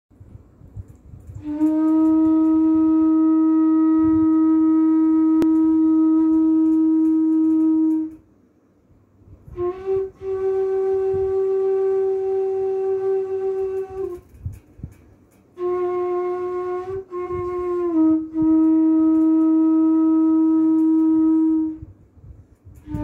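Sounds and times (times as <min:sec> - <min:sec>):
bamboo flute long notes: 0:01.4 - 0:08.2, 0:09.5 - 0:14.3, 0:15.6 - 0:21.9, 0:22.8 - 0:23.0.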